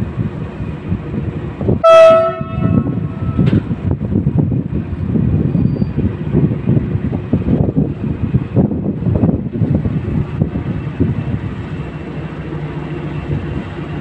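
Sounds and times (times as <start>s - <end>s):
diesel engine rumbling: 0.0s - 14.0s
locomotive horn blast: 1.8s - 3.8s.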